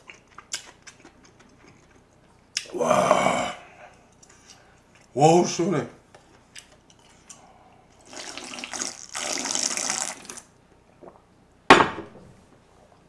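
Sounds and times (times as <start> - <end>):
person slurping broth: 8.0 - 10.4.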